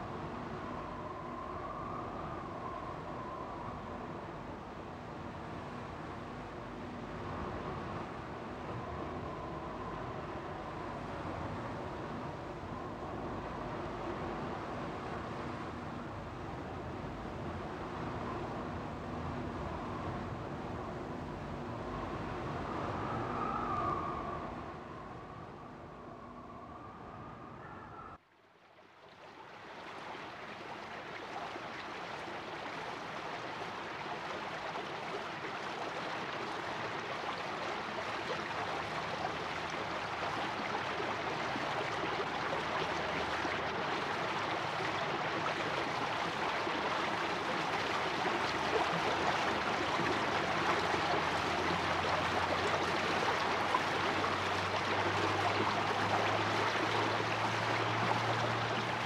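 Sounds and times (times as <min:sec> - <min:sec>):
stream rushing: 0:28.9 - 0:59.0.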